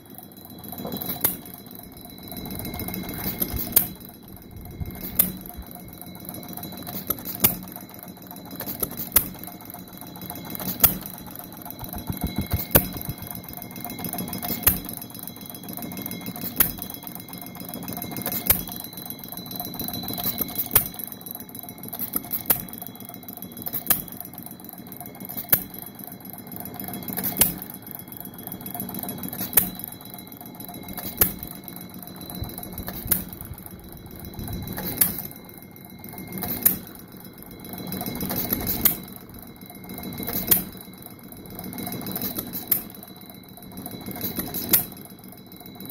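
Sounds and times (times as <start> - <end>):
hit-and-miss engine popping: 10.8 - 14.9.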